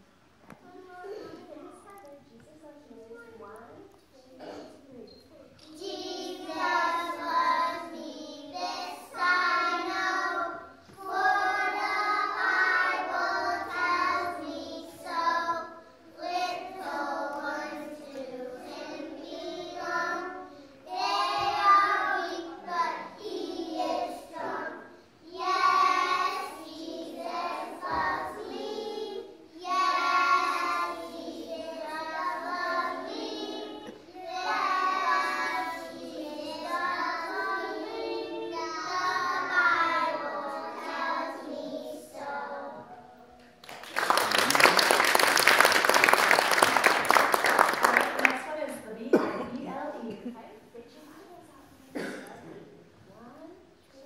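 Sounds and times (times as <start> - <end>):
children singing in unison: 5.7 - 43.0.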